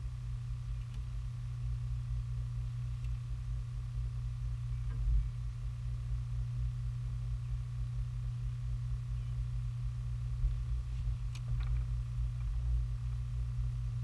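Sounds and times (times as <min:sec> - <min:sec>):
faint higher whine: 0:00.0 - 0:14.0
steady low hum: 0:00.0 - 0:14.0.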